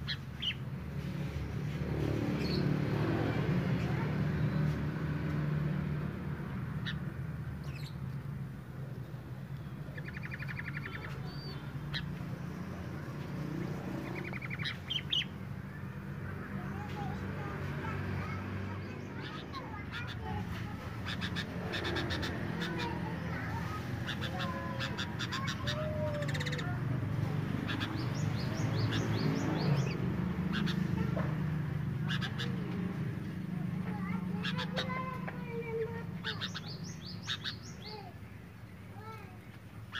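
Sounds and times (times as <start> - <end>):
birds chattering: 0.0 - 39.9
bird chirps: 9.5 - 13.2, 14.0 - 15.4, 27.7 - 30.8, 36.2 - 39.2.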